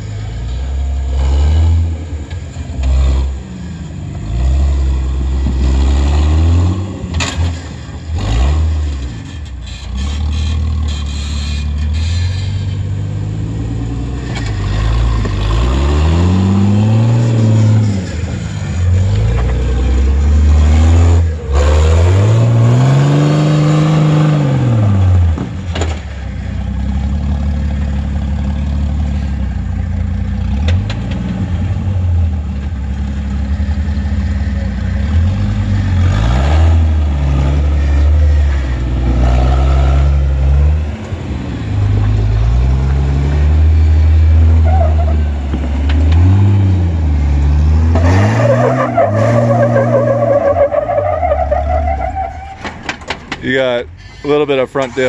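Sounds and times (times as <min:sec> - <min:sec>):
engine revving: 0:01.0 - 0:26.0, 0:34.0 - 0:52.3.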